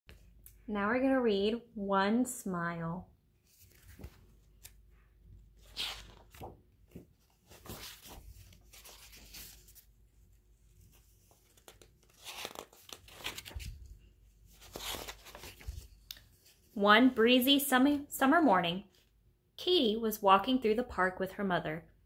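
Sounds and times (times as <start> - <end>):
book pages turning: 3.4 - 16.7.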